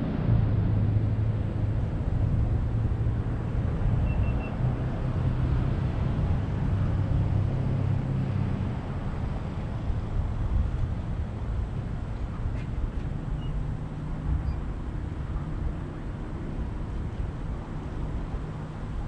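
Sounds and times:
road noise: 0.0s - 19.0s.

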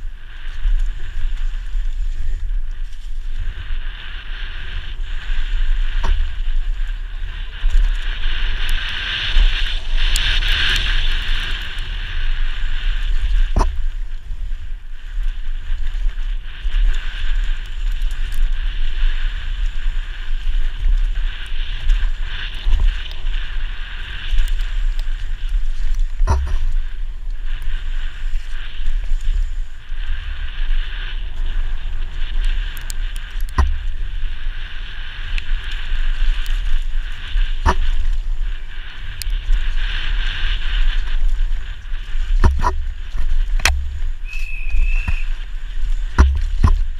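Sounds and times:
bike rattling over dirt trail: 0.0s - 46.9s
wind buffeting camera: 0.0s - 46.9s.

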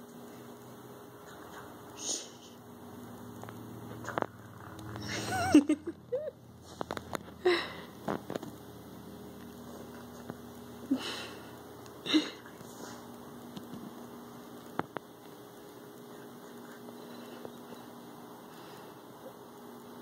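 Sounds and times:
sniffing up close: 12.2s - 13.2s.

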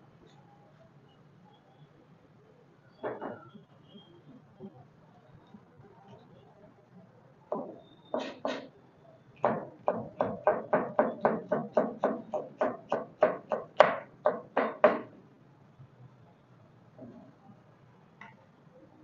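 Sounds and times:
knife chopping on plastic board: 9.4s - 15.1s.

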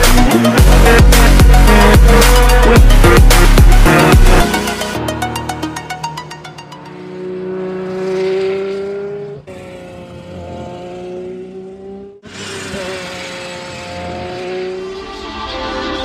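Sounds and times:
electronic music beat: 0.0s - 6.6s
race car engine revving: 5.5s - 15.4s.

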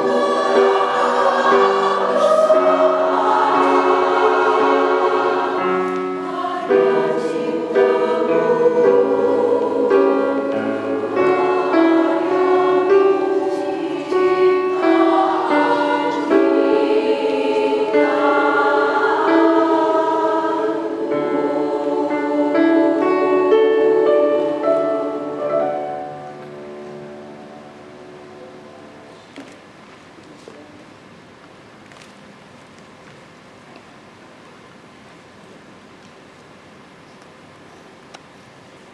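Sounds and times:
women's choir singing: 0.0s - 27.9s.

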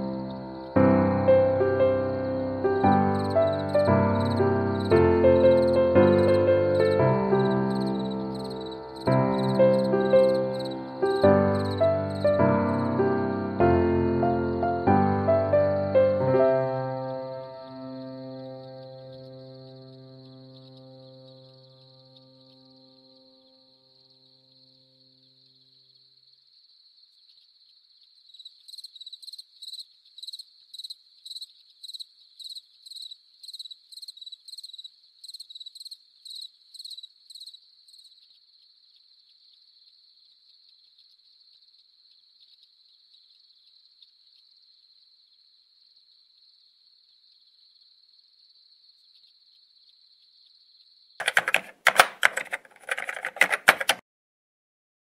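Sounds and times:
crickets trilling: 0.0s - 12.9s, 16.8s - 51.2s
pulsing insect chirp: 0.0s - 13.0s, 15.9s - 51.2s
rapid clicking: 51.2s - 54.0s.

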